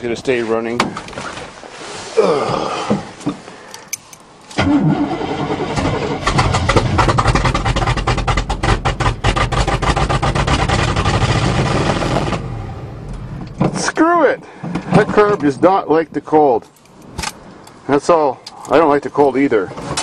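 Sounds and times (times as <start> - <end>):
engine cranking: 3.7 - 12.4
truck engine running roughly: 5.0 - 12.4.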